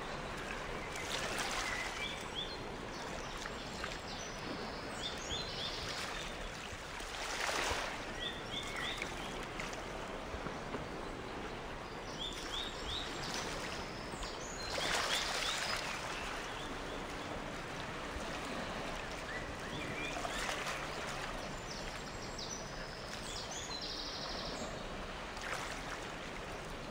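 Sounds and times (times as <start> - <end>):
stream water rushing: 0.0 - 26.9
birds chirping: 18.6 - 24.8.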